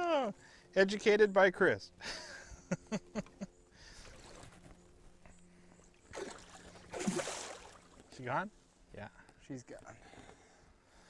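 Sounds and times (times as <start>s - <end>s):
faint steady hum: 0.0s - 11.0s
water splashing: 6.0s - 8.1s.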